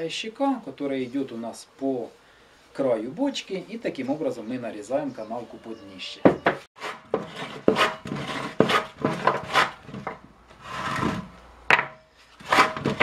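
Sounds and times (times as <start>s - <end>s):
croze rasping on wood: 6.8s - 11.2s, 12.4s - 13.0s.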